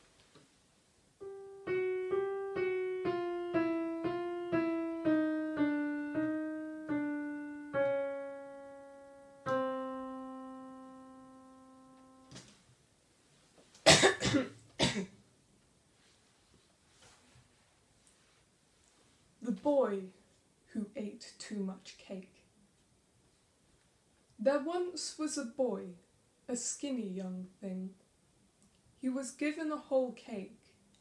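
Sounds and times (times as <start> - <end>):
digital piano notes: 1.2 - 12.4
person coughing: 13.9 - 15.2.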